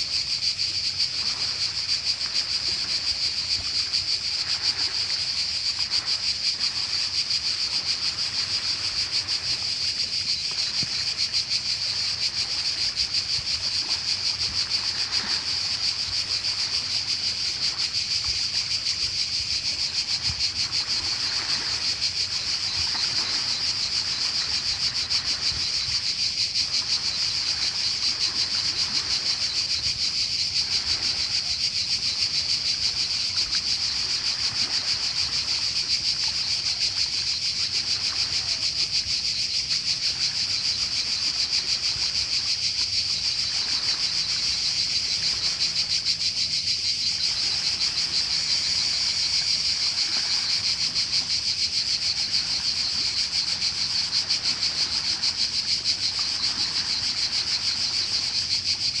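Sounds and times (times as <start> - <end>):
cicadas buzzing: 0.0 - 59.0
waves washing onto pebbles: 1.2 - 46.2, 47.0 - 59.0.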